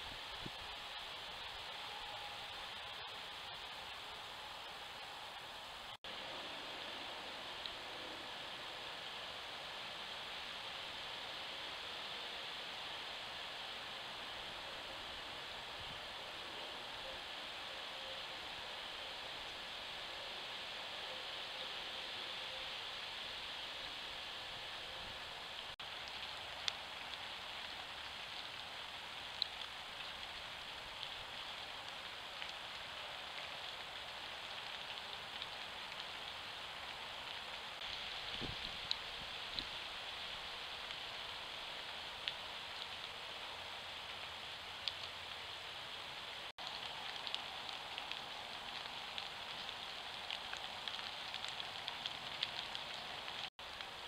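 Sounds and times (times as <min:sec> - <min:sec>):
microphone hiss: 0:00.0 - 0:54.0
faint irregular ticks: 0:25.6 - 0:39.8, 0:40.6 - 0:54.0.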